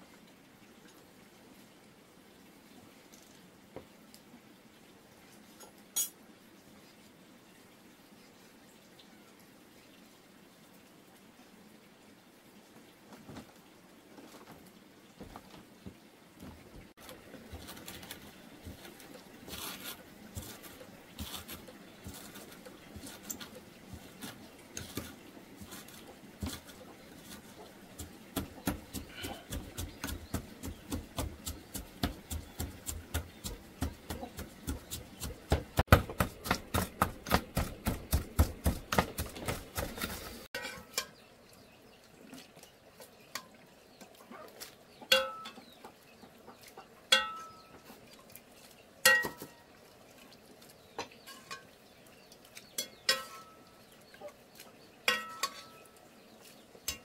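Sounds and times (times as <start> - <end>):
utensil clinking against metal pot: 45.1 - 45.6, 47.1 - 47.7, 49.0 - 49.5, 51.2 - 51.7, 52.8 - 53.6, 55.1 - 55.8.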